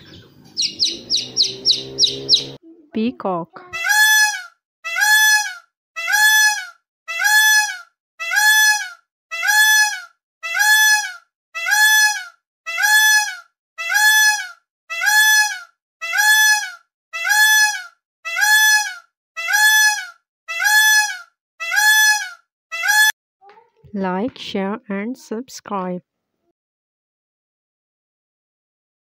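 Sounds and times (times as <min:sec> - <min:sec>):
peacock calling: 0:00.0 - 0:02.6, 0:03.8 - 0:23.1.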